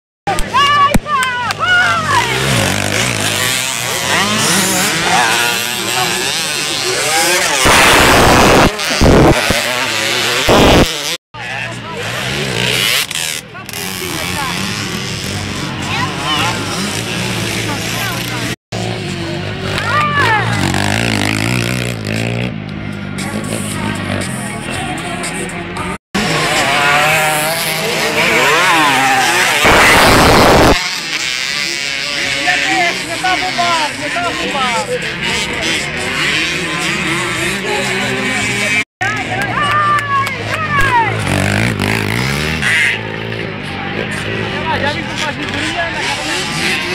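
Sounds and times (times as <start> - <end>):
motocross bikes revving: 0.3 - 46.9
loud rushing noise: 7.2 - 11.1, 26.2 - 31.1.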